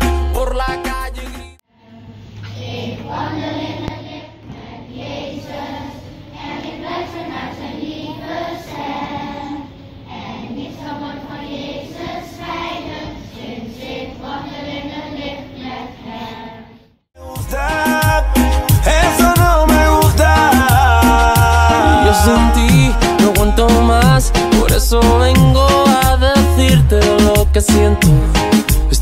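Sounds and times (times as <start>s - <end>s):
children singing in unison: 1.8s - 16.8s, 18.9s - 24.1s.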